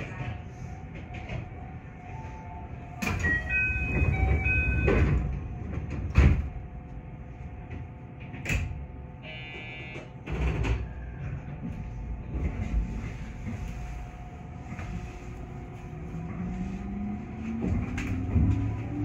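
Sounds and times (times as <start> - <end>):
electronic door chime: 3.0 - 5.0
sliding doors shutting with thump: 3.0 - 6.6.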